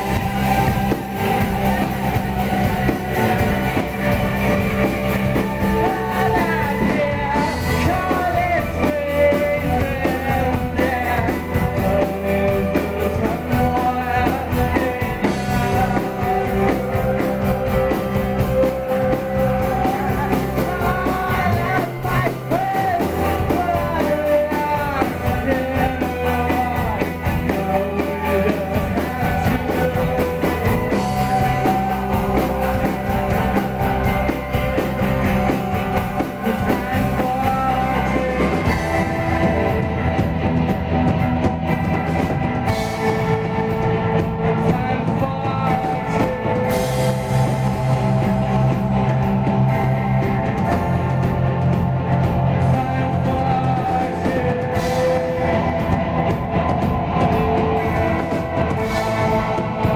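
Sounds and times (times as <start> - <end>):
live rock band playing: 0.0 - 59.9
person singing: 0.0 - 59.9.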